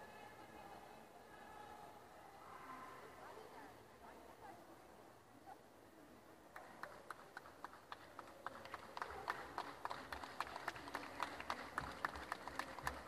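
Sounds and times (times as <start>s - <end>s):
audience clapping: 6.5s - 13.0s.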